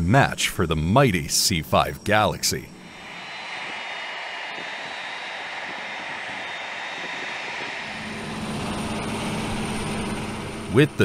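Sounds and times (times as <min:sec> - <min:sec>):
jet engines rushing with whine: 0:02.8 - 0:11.0.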